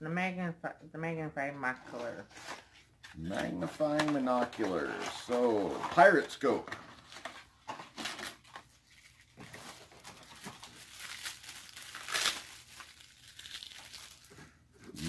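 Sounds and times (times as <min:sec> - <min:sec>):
packaging crinkling and rustling: 0:03.4 - 0:14.6.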